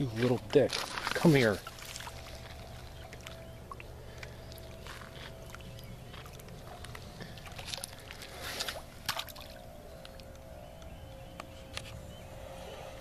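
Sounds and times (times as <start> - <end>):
steady low hum: 0.0 - 13.0
water sloshing: 0.1 - 10.6
water splashing: 1.0 - 10.2.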